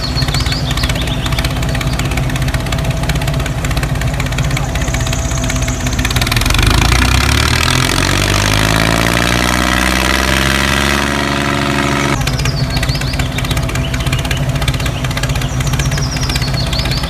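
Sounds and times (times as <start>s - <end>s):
small motor humming: 0.0s - 17.0s
motor note rising in pitch: 4.7s - 15.1s.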